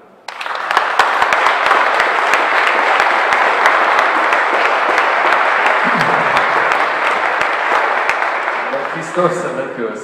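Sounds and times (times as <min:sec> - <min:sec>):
audience applause: 0:00.3 - 0:09.9.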